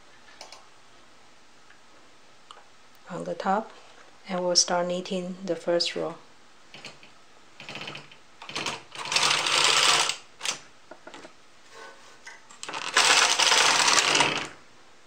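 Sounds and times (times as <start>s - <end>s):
small clicks: 0.3s - 0.6s
knitting machine carriage clattering: 12.7s - 14.6s.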